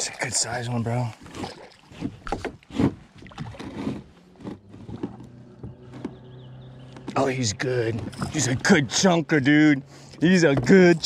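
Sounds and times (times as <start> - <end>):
knocks against plastic hull: 10.5 - 10.9.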